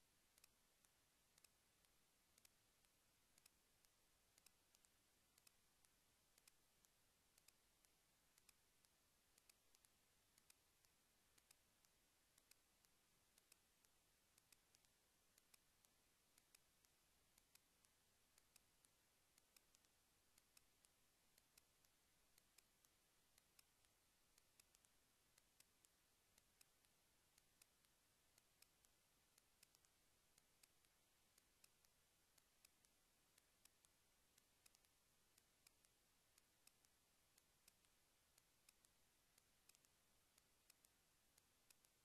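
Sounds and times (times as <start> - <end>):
faint irregular clicks: 0.0 - 42.0.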